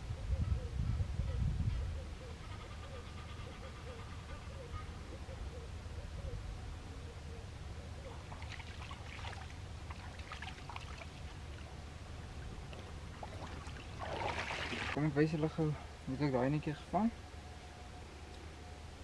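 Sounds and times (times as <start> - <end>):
steady low rumble: 0.0 - 19.0
hands splashing in shallow water: 8.3 - 11.4, 12.7 - 15.0
water pouring and dripping off mesh: 8.4 - 11.3, 12.7 - 15.0.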